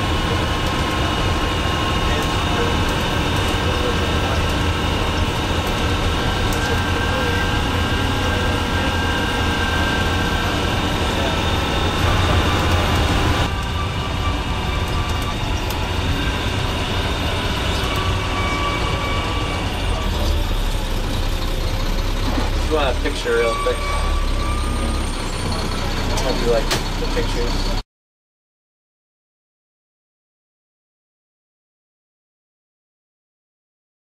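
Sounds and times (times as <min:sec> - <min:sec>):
bus engine drone: 0:00.0 - 0:27.8
gravel road noise: 0:00.0 - 0:27.8.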